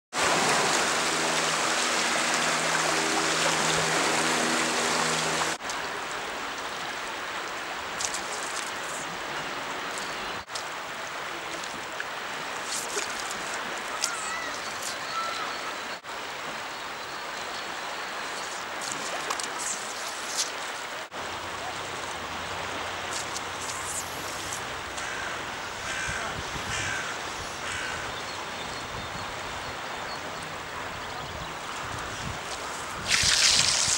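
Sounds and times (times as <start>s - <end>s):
river rushing: 0.2s - 25.9s, 32.7s - 33.9s.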